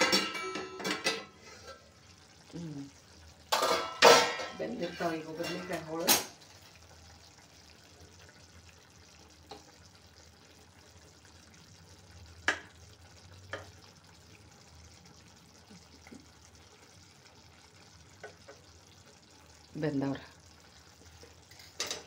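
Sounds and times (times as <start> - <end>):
metal utensil clicking on pan: 0.0 - 1.3, 21.6 - 22.0.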